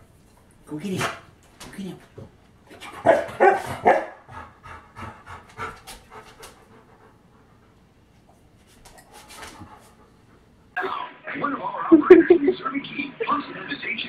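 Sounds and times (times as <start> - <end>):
large dog panting: 2.2 - 8.3, 9.0 - 10.8.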